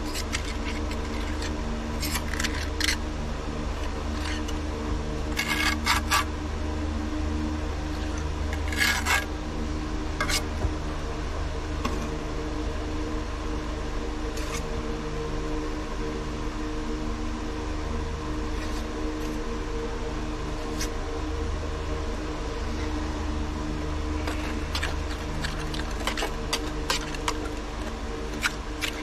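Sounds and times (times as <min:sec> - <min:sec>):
trowel scraping mortar: 0:00.0 - 0:03.0, 0:03.8 - 0:04.6, 0:05.3 - 0:06.3, 0:08.0 - 0:09.3, 0:10.2 - 0:10.5, 0:14.4 - 0:14.6, 0:18.6 - 0:19.4, 0:24.2 - 0:29.0
steady low hum: 0:00.0 - 0:29.0.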